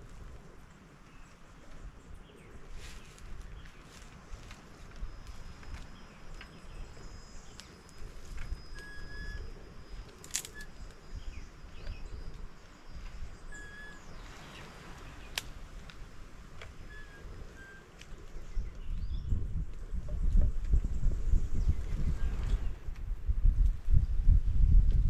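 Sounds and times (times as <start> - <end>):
birds whistling and chirping: 5.0 - 15.4, 16.8 - 19.4.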